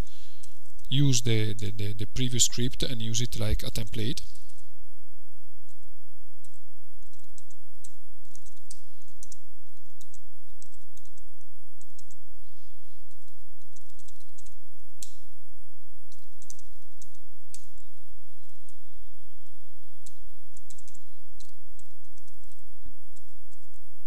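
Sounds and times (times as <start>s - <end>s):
faint high whine: 0.0s - 24.0s
steady low hum: 0.0s - 24.0s
typing on computer keyboard: 6.4s - 12.2s, 13.1s - 15.2s, 16.1s - 17.9s, 20.0s - 23.8s.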